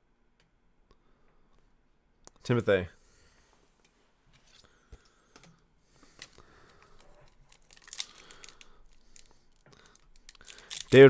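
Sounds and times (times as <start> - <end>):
cards rustling: 6.0 - 11.0.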